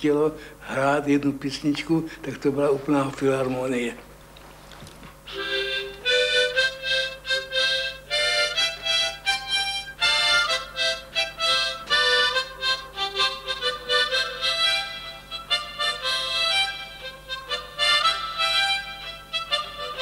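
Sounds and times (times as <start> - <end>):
harmonica tune: 5.2 - 20.0.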